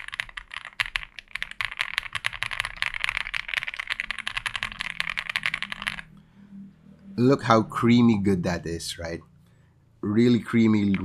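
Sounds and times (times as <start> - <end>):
mechanical keyboard typing: 0.0 - 6.1, 10.7 - 11.0.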